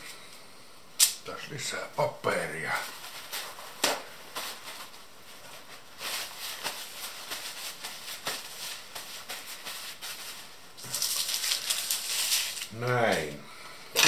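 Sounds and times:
paper towel rustling and crinkling: 0:02.2 - 0:13.4.

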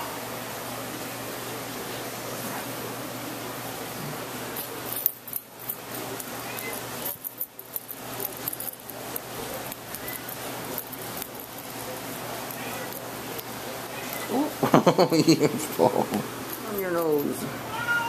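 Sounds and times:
steady background hiss: 0:00.0 - 0:18.0
kitten eating and licking: 0:05.5 - 0:14.6.

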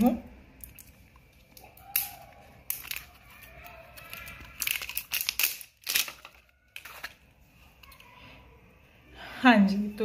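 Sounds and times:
plastic and cardboard crinkling: 0:00.6 - 0:08.1.

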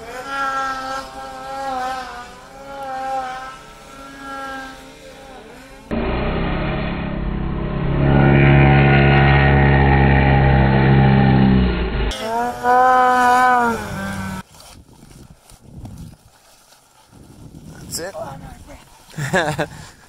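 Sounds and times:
distant snowmobile engine: 0:00.0 - 0:14.4
snowmobile engine revving close: 0:00.0 - 0:14.4.

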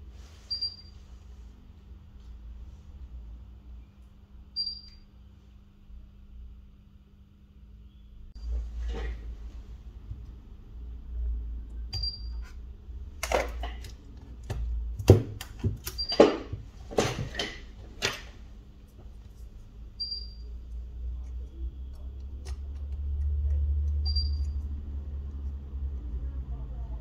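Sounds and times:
low steady rumble: 0:17.8 - 0:27.0.

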